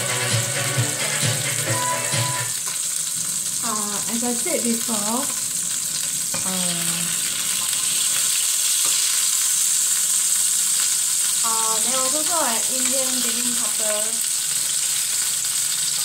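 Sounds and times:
meat sizzling in a frying pan: 2.3s - 16.0s.

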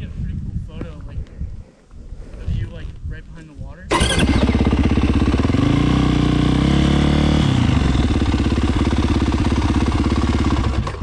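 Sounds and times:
motocross bike engine revving: 3.9s - 11.0s.

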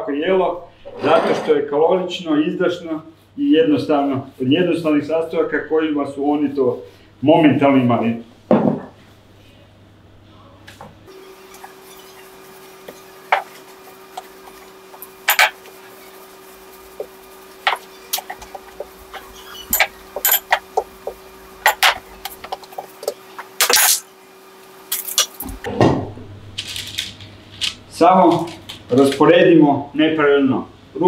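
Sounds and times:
faint steady hum: 0.0s - 31.0s
rolling pin knocking on counter: 8.5s - 8.9s.

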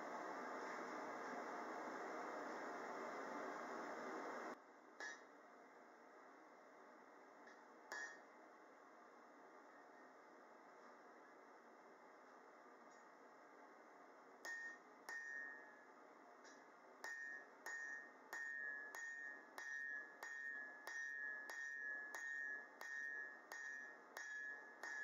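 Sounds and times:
steady hiss: 0.0s - 4.6s
hammer striking steel on anvil: 7.9s - 8.3s, 14.4s - 25.0s.

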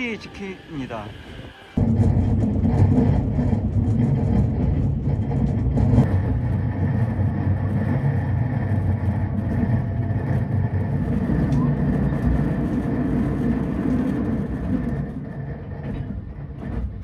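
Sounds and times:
train rumbling on rails: 0.0s - 17.0s.

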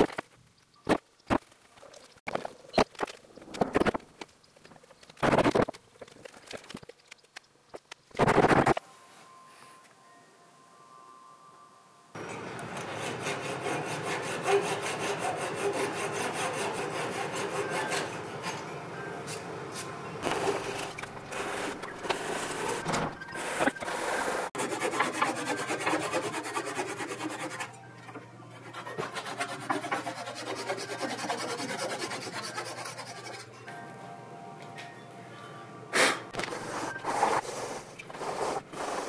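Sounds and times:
handsaw sawing wood: 12.8s - 18.3s, 24.5s - 27.7s, 28.7s - 33.5s.

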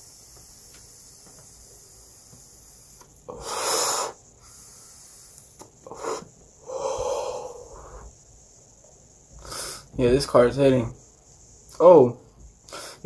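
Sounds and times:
person exhaling vapour: 0.1s - 8.1s, 9.4s - 9.9s, 12.7s - 13.0s.

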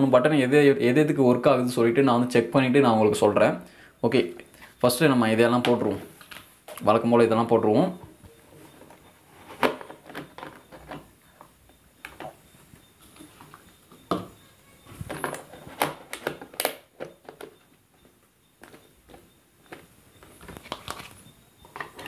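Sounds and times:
hard plastic parts clicking: 13.1s - 22.0s.

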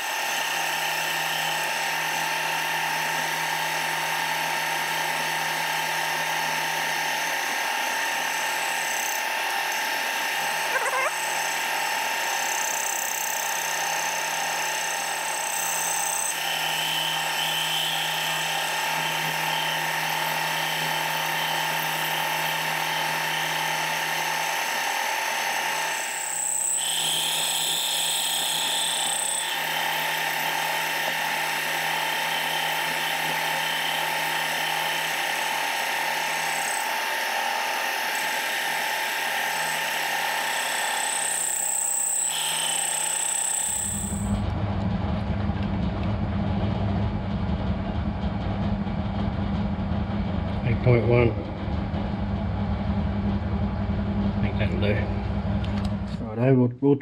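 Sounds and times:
milling machine cutting metal: 0.0s - 44.5s
high-pitched cutting whine: 0.0s - 56.5s
constant hum: 43.8s - 57.0s.

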